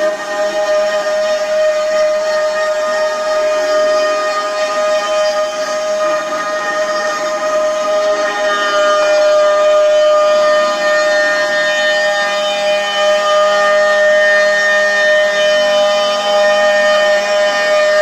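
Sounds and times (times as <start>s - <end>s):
router spindle high whine: 0.0s - 18.0s.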